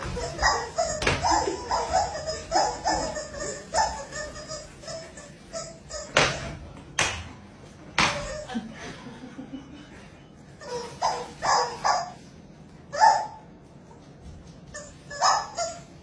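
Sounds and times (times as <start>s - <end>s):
people laughing: 1.0s - 4.1s, 8.2s - 10.3s.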